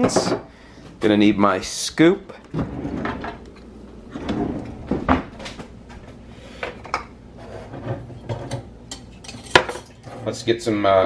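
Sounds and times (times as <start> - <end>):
metal utensils clinking and rattling: 8.2 - 10.3.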